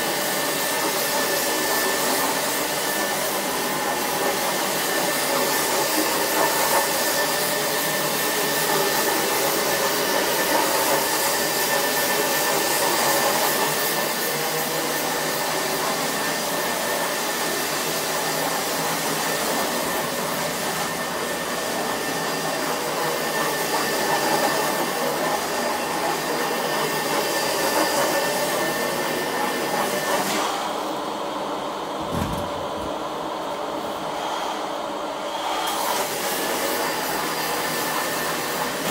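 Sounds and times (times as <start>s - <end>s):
carpet extraction machine running: 0.0s - 38.9s
low thud: 32.0s - 33.0s.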